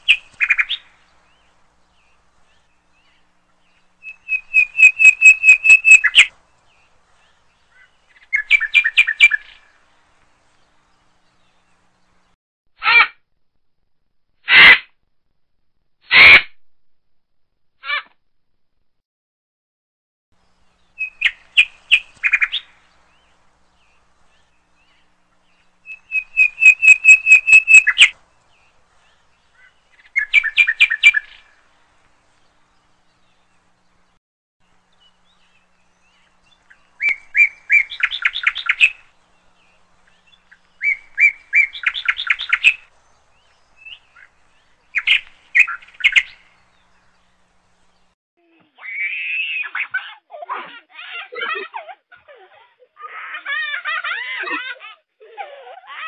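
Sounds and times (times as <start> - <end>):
songbird chirps and trills: 0.0 - 12.4, 20.4 - 50.2.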